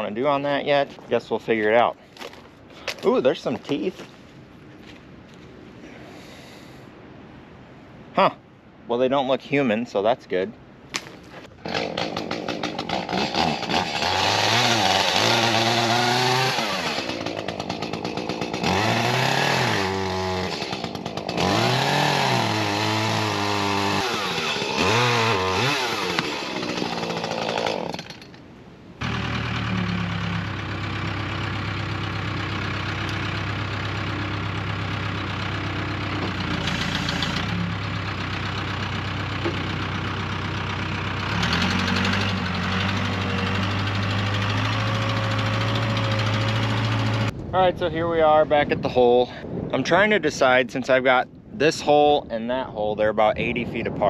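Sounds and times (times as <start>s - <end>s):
backhoe engine running: 11.5s - 28.4s, 29.0s - 47.5s
chainsaw revving: 11.6s - 28.4s, 29.0s - 47.3s.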